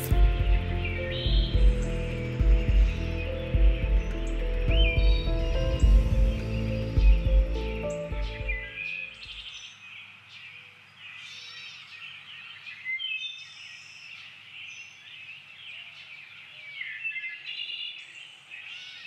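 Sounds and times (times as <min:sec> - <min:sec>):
faint outdoor hum: 0:00.0 - 0:09.3
songbirds chirping and singing: 0:00.0 - 0:19.0.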